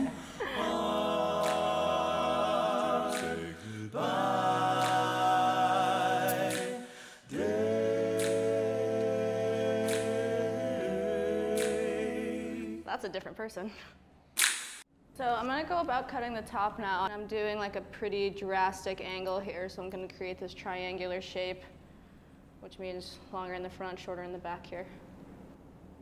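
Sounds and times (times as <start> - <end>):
voices singing held chords: 0.0 - 12.9.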